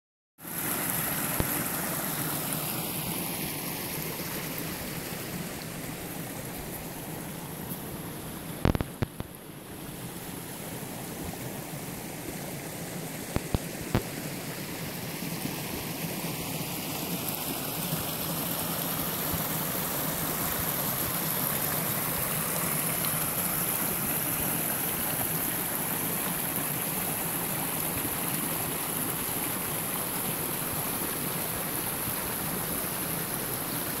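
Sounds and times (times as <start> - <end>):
creek rushing over rocks: 0.4 - 34.0.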